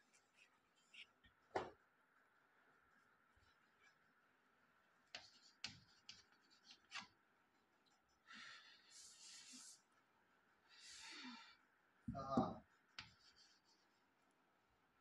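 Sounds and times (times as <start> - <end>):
chalk writing on a blackboard: 5.1 - 7.1, 8.8 - 9.8, 13.0 - 14.0.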